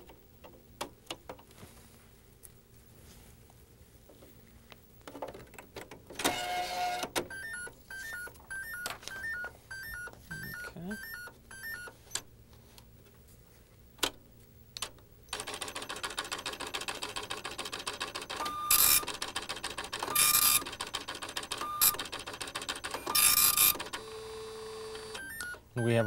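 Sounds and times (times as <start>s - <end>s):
dot-matrix printer rattling: 15.4s - 24.0s.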